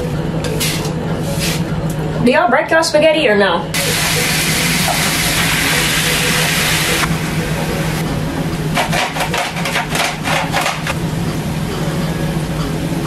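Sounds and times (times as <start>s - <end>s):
steady low hum: 3.6s - 13.0s
meat sizzling in frying pan: 3.8s - 7.0s.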